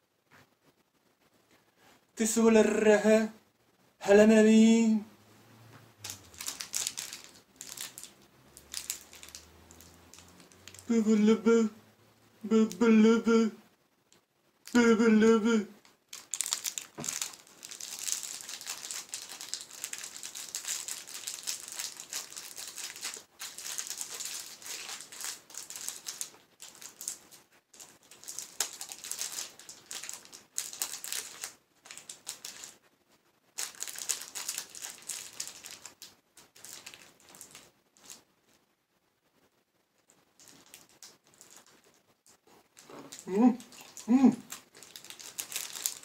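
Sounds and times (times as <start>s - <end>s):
plastic wrapper crinkling: 6.0s - 11.0s, 15.8s - 32.9s, 33.5s - 38.3s, 40.0s - 46.0s.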